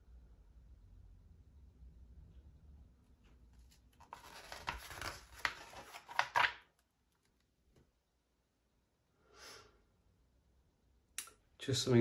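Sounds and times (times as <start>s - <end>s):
paper pages rustling: 3.2s - 7.4s.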